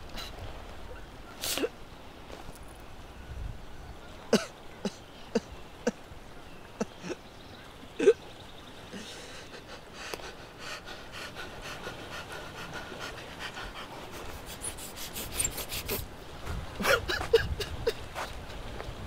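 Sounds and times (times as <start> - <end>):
man sobbing: 8.9 - 11.6, 16.8 - 18.0.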